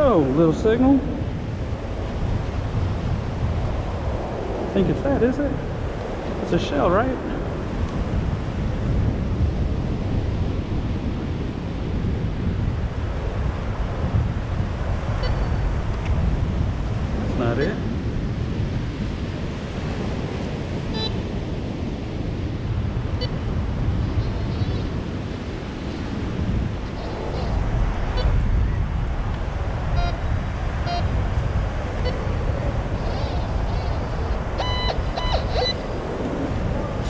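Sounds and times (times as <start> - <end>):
surf: 0.0 - 37.0
wind noise on microphone: 0.0 - 37.0
metal detector beeps: 15.2 - 15.7, 21.0 - 21.2, 30.9 - 31.1, 34.6 - 35.9.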